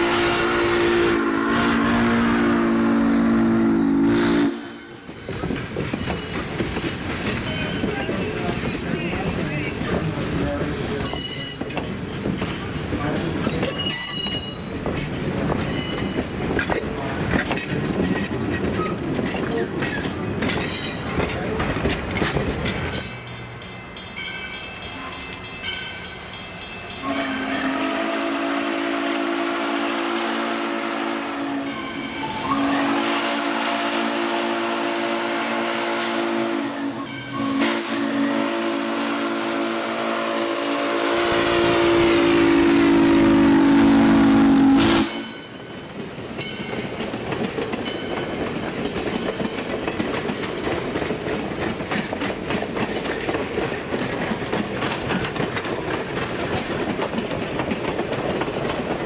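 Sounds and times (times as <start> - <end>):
steam whistle chord: 0.0 - 4.9, 27.0 - 45.3
train wheels rumbling on rails: 0.0 - 59.0.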